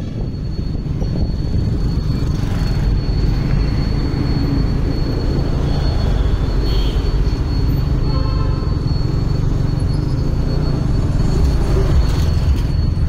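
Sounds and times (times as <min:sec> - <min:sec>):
wind on microphone: 0:00.0 - 0:04.9
high-pitched whine: 0:00.0 - 0:13.0
road noise: 0:00.0 - 0:13.0.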